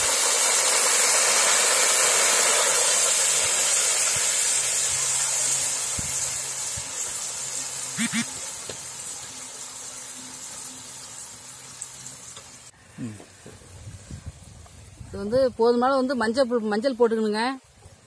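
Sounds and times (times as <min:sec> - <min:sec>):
liquid sizzling in hot oil: 0:00.0 - 0:12.8.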